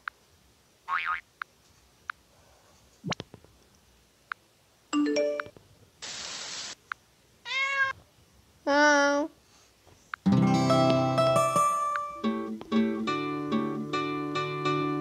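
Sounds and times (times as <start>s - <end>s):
hiss: 6.0s - 6.8s
cartoon cat meow: 7.5s - 8.0s.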